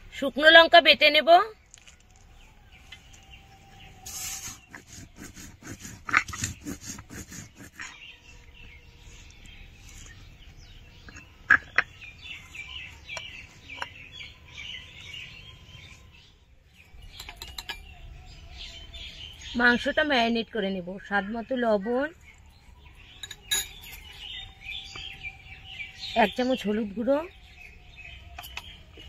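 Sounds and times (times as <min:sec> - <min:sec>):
small birds chirping: 0:00.0 - 0:29.0
grinding stone scraping: 0:04.3 - 0:08.2.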